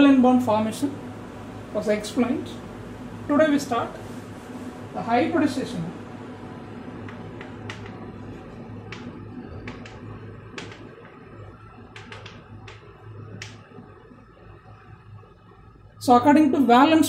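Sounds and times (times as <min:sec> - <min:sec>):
steady low hum: 0:00.0 - 0:17.0
chalk tapping on blackboard: 0:11.9 - 0:12.8.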